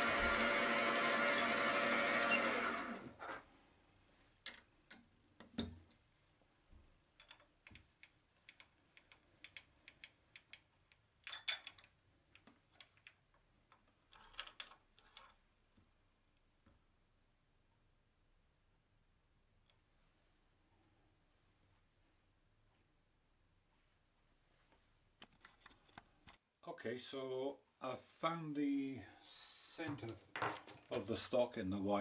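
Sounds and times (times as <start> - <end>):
workshop machine motor running: 0.0 - 3.2.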